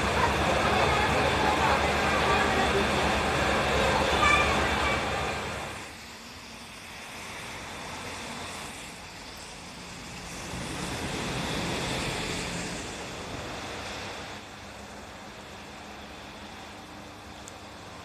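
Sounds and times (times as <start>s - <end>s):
diesel engine idling: 0.0s - 5.8s.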